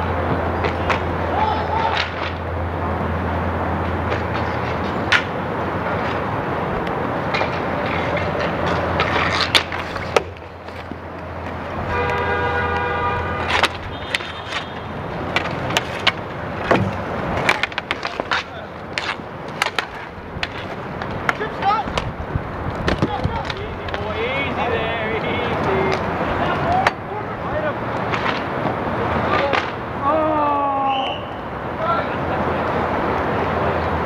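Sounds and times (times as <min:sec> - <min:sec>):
sticks and puck clacking: 0:00.0 - 0:02.6, 0:03.7 - 0:30.2
vehicle horn: 0:11.8 - 0:15.0.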